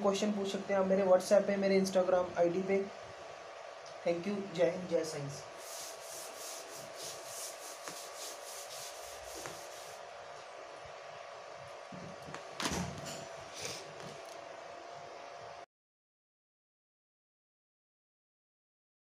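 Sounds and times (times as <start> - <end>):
faint steady hum: 0.0 - 15.7
chalk wiped off blackboard: 5.6 - 10.0.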